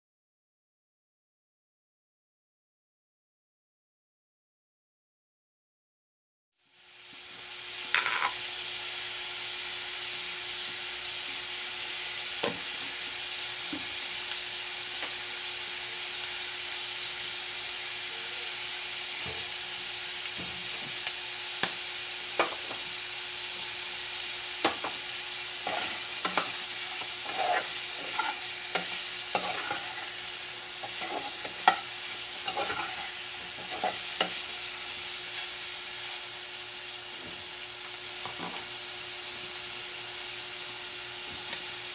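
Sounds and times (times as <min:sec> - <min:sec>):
meat sizzling in a pot: 0:06.6 - 0:41.9
utensil scraping a pot: 0:25.6 - 0:34.5.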